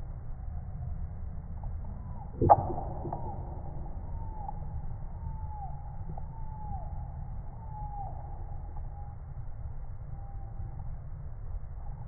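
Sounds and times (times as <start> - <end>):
steady low rumble: 0.0 - 12.0
faint falling tones: 1.9 - 9.3.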